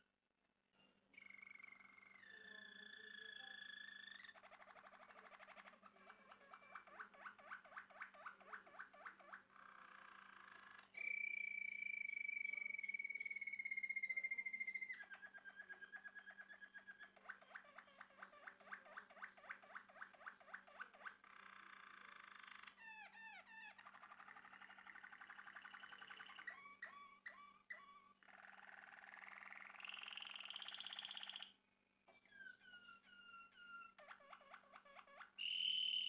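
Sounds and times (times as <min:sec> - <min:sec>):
canary singing: 0:01.2 - 0:36.0.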